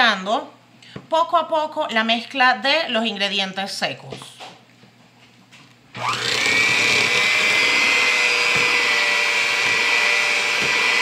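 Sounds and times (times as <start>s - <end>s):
electric mixer whining: 5.9s - 11.0s.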